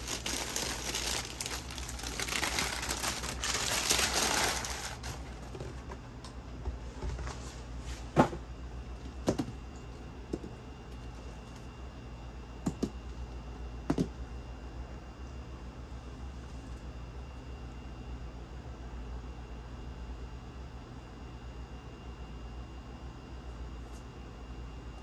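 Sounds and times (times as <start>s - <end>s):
tissue paper crinkling: 0.0s - 5.6s.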